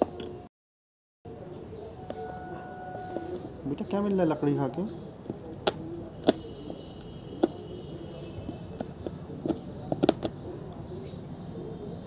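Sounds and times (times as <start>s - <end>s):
dog teeth gnawing on wood: 5.0s - 7.8s, 8.4s - 10.8s.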